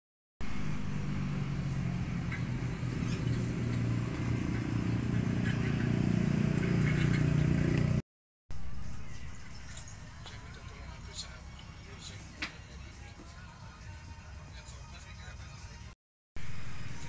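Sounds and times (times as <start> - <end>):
engine running: 0.4 - 12.1.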